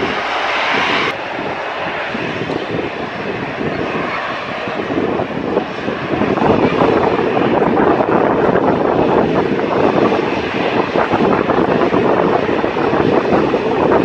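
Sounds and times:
jet engines at takeoff: 0.0 - 14.0.

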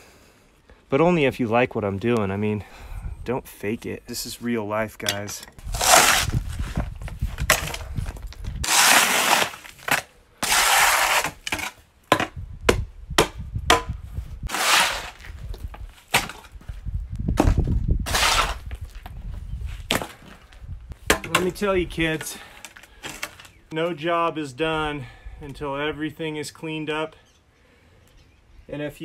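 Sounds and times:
shovel scraping soil on concrete: 5.1 - 6.8, 8.6 - 11.8, 14.4 - 15.4, 18.0 - 18.7.

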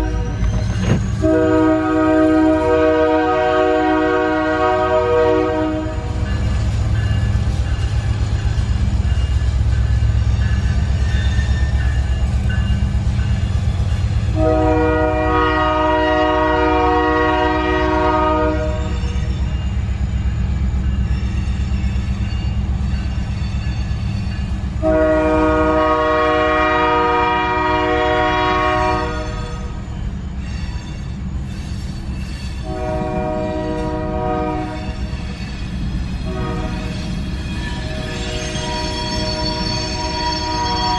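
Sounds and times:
locomotive horn blasts: 1.2 - 6.2, 14.3 - 19.1, 24.8 - 29.8, 32.6 - 35.0, 36.2 - 36.9, 37.8 - 40.9.

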